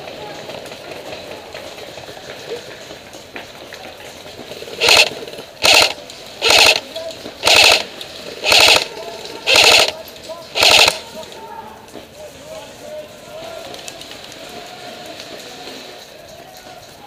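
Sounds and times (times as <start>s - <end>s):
airsoft rifle full-auto bursts: 4.8s - 10.0s, 10.6s - 11.0s.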